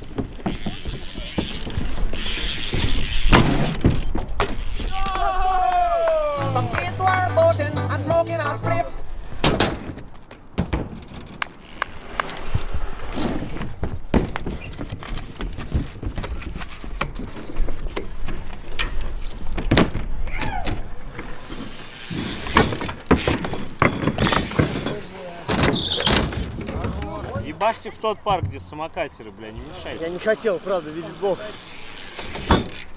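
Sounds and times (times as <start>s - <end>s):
bike knocks and clatters: 0.0s - 5.2s, 9.4s - 12.3s, 13.2s - 28.9s, 31.8s - 32.9s
bikes rolling over concrete: 0.0s - 8.6s, 9.2s - 32.9s
tyre squeaks: 13.1s - 18.5s, 21.2s - 26.8s.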